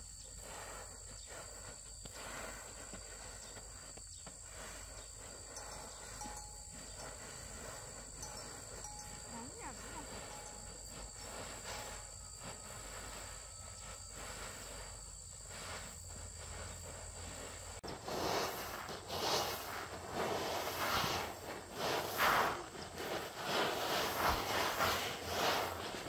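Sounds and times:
insect chirring: 0.0 - 26.0.

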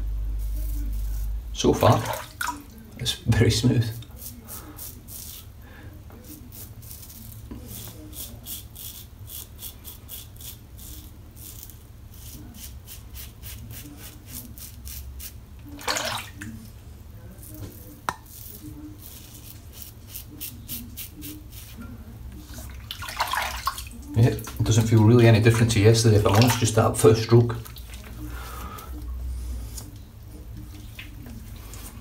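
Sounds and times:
razor scraping stubble: 0.4 - 1.4, 4.0 - 5.5, 6.2 - 15.4, 17.4 - 22.7.

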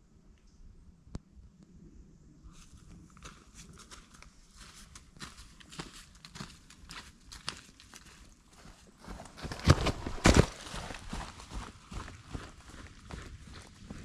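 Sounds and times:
footsteps in dry leaves: 2.6 - 11.8.

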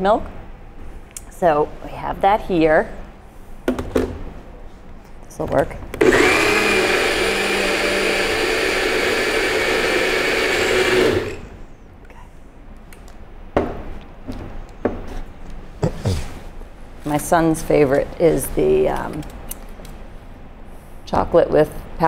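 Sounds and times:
blender running: 6.0 - 11.6.

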